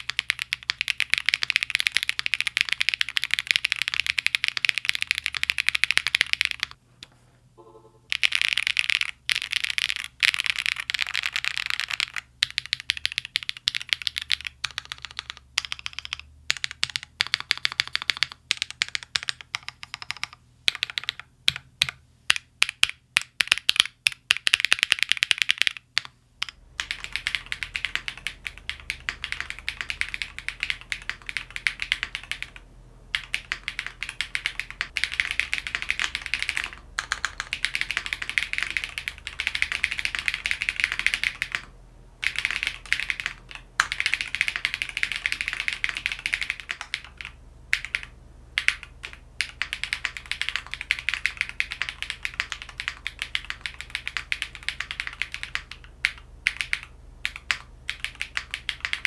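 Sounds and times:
mechanical keyboard typing: 0.0 - 6.8, 8.1 - 59.0.

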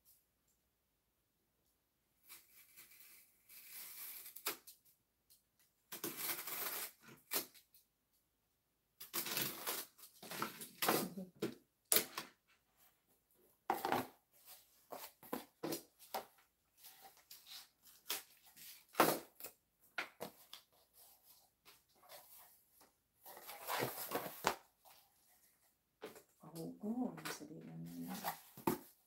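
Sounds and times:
cardboard scraping and rustling: 23.3 - 25.0.

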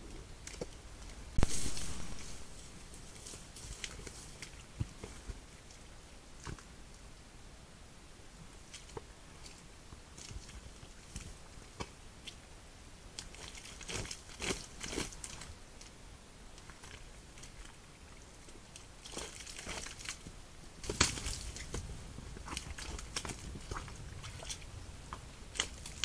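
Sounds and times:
rustles and crackles in grass: 0.0 - 7.0, 8.4 - 26.0
deer stepping through mud: 1.4 - 5.4, 19.0 - 26.0.

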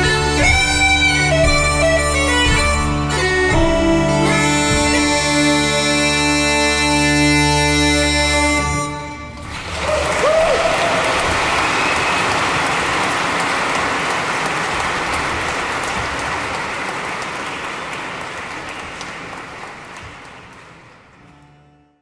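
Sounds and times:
audience applauding: 9.3 - 21.5.

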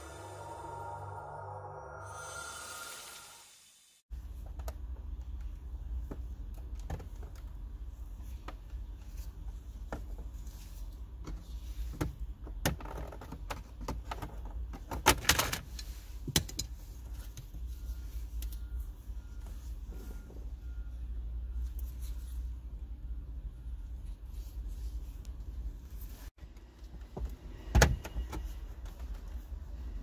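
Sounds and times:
low hum: 0.0 - 3.8.

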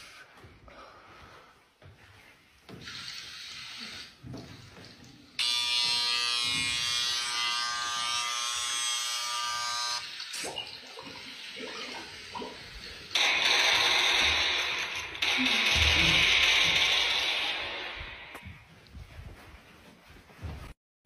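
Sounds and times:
hair clipper buzzing: 5.4 - 10.3, 13.2 - 18.4.

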